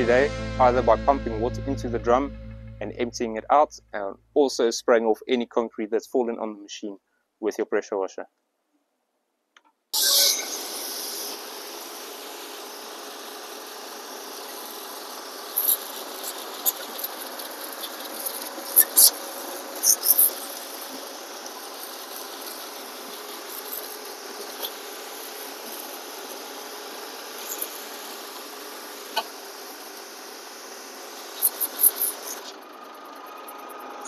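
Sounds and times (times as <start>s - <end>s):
diesel engine running: 0.0s - 3.9s, 10.7s - 34.0s
short high-pitched squeaks: 10.0s - 10.8s, 15.5s - 26.4s, 27.3s - 28.2s, 31.3s - 34.0s.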